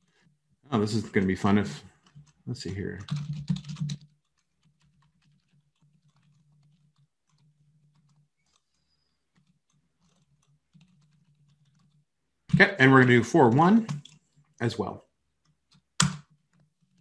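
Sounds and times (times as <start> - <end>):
computer keyboard typing: 0.9 - 14.3, 15.4 - 17.0.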